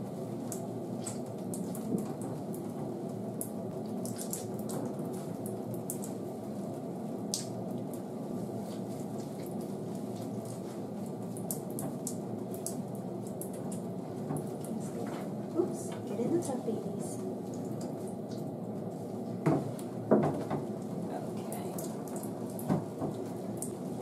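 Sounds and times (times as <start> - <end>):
water dripping into plastic tub: 7.3 - 8.0, 11.3 - 14.8, 17.2 - 18.6, 19.4 - 23.8.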